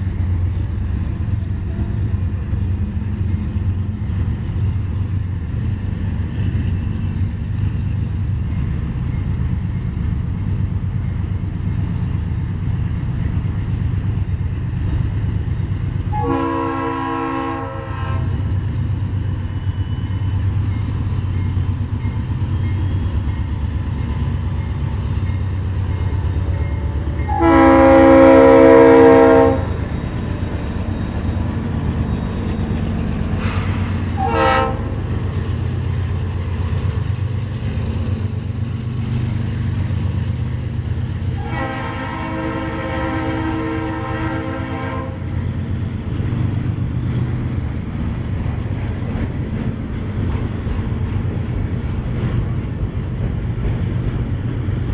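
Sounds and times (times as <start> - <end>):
train wheels rumbling: 0.0 - 54.9
locomotive horn blasts: 16.1 - 18.4, 26.0 - 29.8, 33.6 - 35.0, 41.4 - 45.2.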